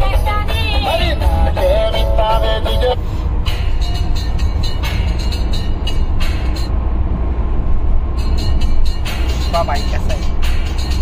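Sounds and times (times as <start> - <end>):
car stereo music: 0.0 - 6.7, 8.0 - 11.0
road and tyre noise in car: 0.0 - 11.0.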